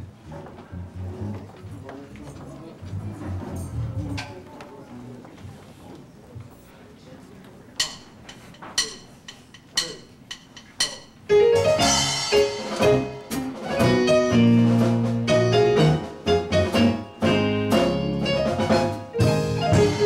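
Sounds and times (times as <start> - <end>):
keyboard and drums band: 7.8 - 20.0.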